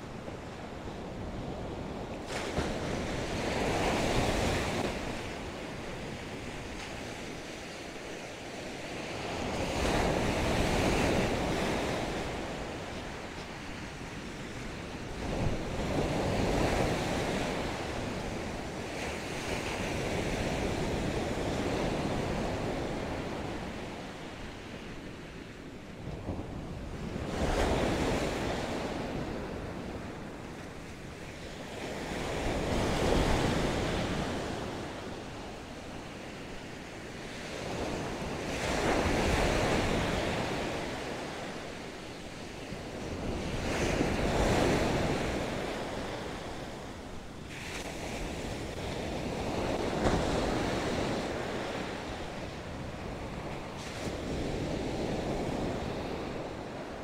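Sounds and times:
ocean surf breaking: 0:27.2 - 0:57.0.

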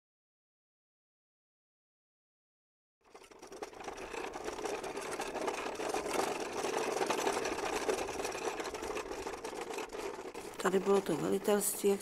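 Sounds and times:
machine clattering: 0:03.0 - 0:12.0.

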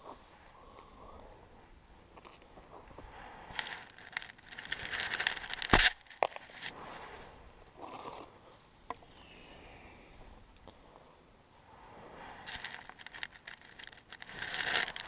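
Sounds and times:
arrow drawing rustle and scrape: 0:11.8 - 0:15.0.

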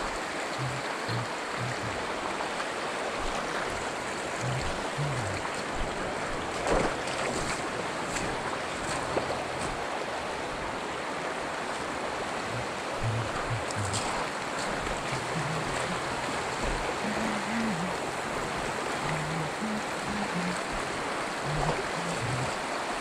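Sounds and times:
fast river over gravel: 0:00.0 - 0:23.0
faint ticks: 0:03.2 - 0:05.9, 0:12.5 - 0:18.0.

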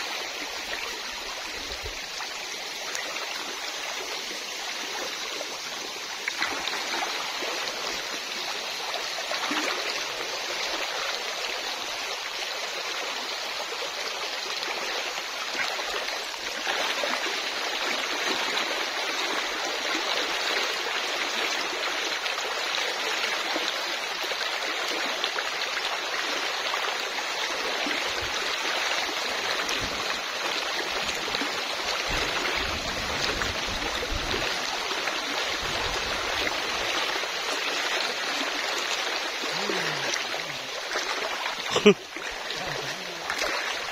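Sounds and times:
shallow river flowing: 0:00.0 - 0:43.9.

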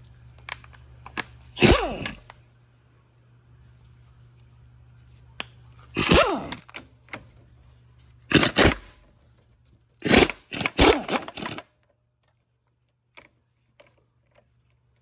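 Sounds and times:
impact wrench hammering: 0:01.6 - 0:02.2, 0:06.0 - 0:06.6, 0:08.3 - 0:08.9, 0:10.0 - 0:11.6.

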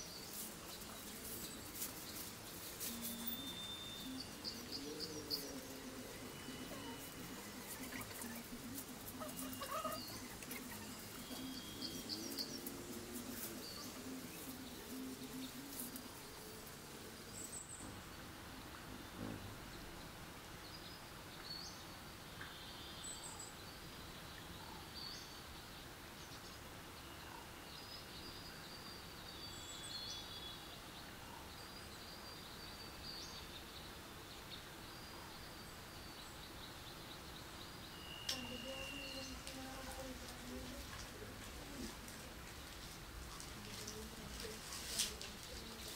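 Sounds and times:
palm leaves rustling and clicking: 0:00.0 - 0:17.5, 0:38.2 - 0:45.9
small birds chirping: 0:00.0 - 0:45.9.

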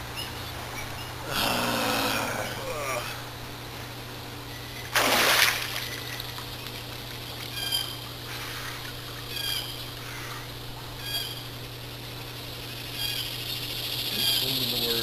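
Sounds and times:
pool water splashing: 0:04.9 - 0:07.2.

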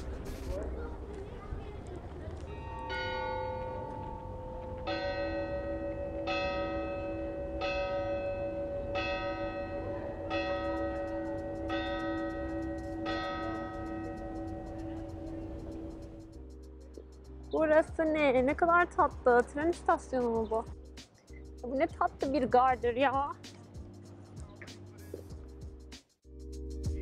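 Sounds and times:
church bell tolling: 0:02.5 - 0:16.2.

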